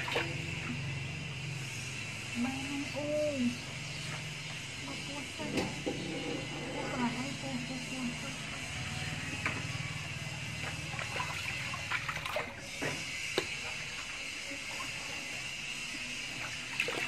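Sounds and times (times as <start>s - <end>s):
water running and splashing: 0.0s - 0.8s, 10.6s - 12.7s, 16.2s - 17.0s.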